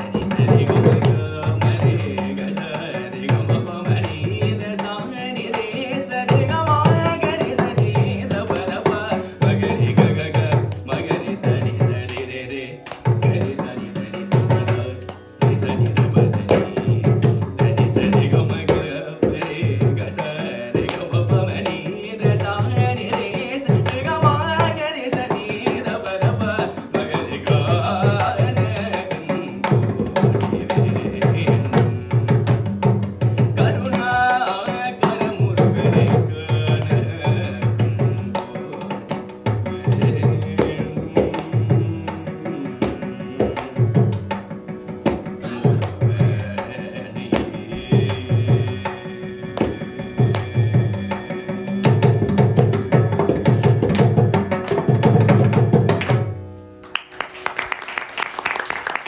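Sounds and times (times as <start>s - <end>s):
hand drum fast strokes: 0.0s - 12.1s, 13.1s - 56.4s
person singing: 0.0s - 44.6s, 45.3s - 56.1s
people clapping: 56.8s - 59.0s.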